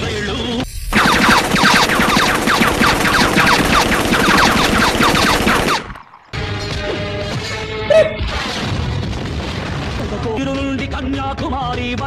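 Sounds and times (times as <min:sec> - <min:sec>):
rapid automatic gunfire: 0:01.0 - 0:06.4
falling whines: 0:01.0 - 0:06.5.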